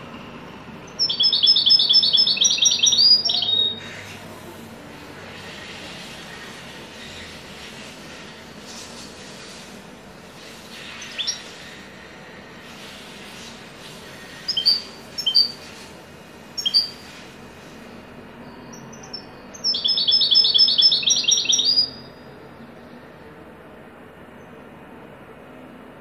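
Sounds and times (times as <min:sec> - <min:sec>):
fast bird trill: 0:00.9 - 0:03.8, 0:14.2 - 0:15.7, 0:16.6 - 0:17.1, 0:18.7 - 0:22.2
bird call notes: 0:01.0 - 0:04.0, 0:14.4 - 0:15.7, 0:16.6 - 0:17.1, 0:18.7 - 0:22.2.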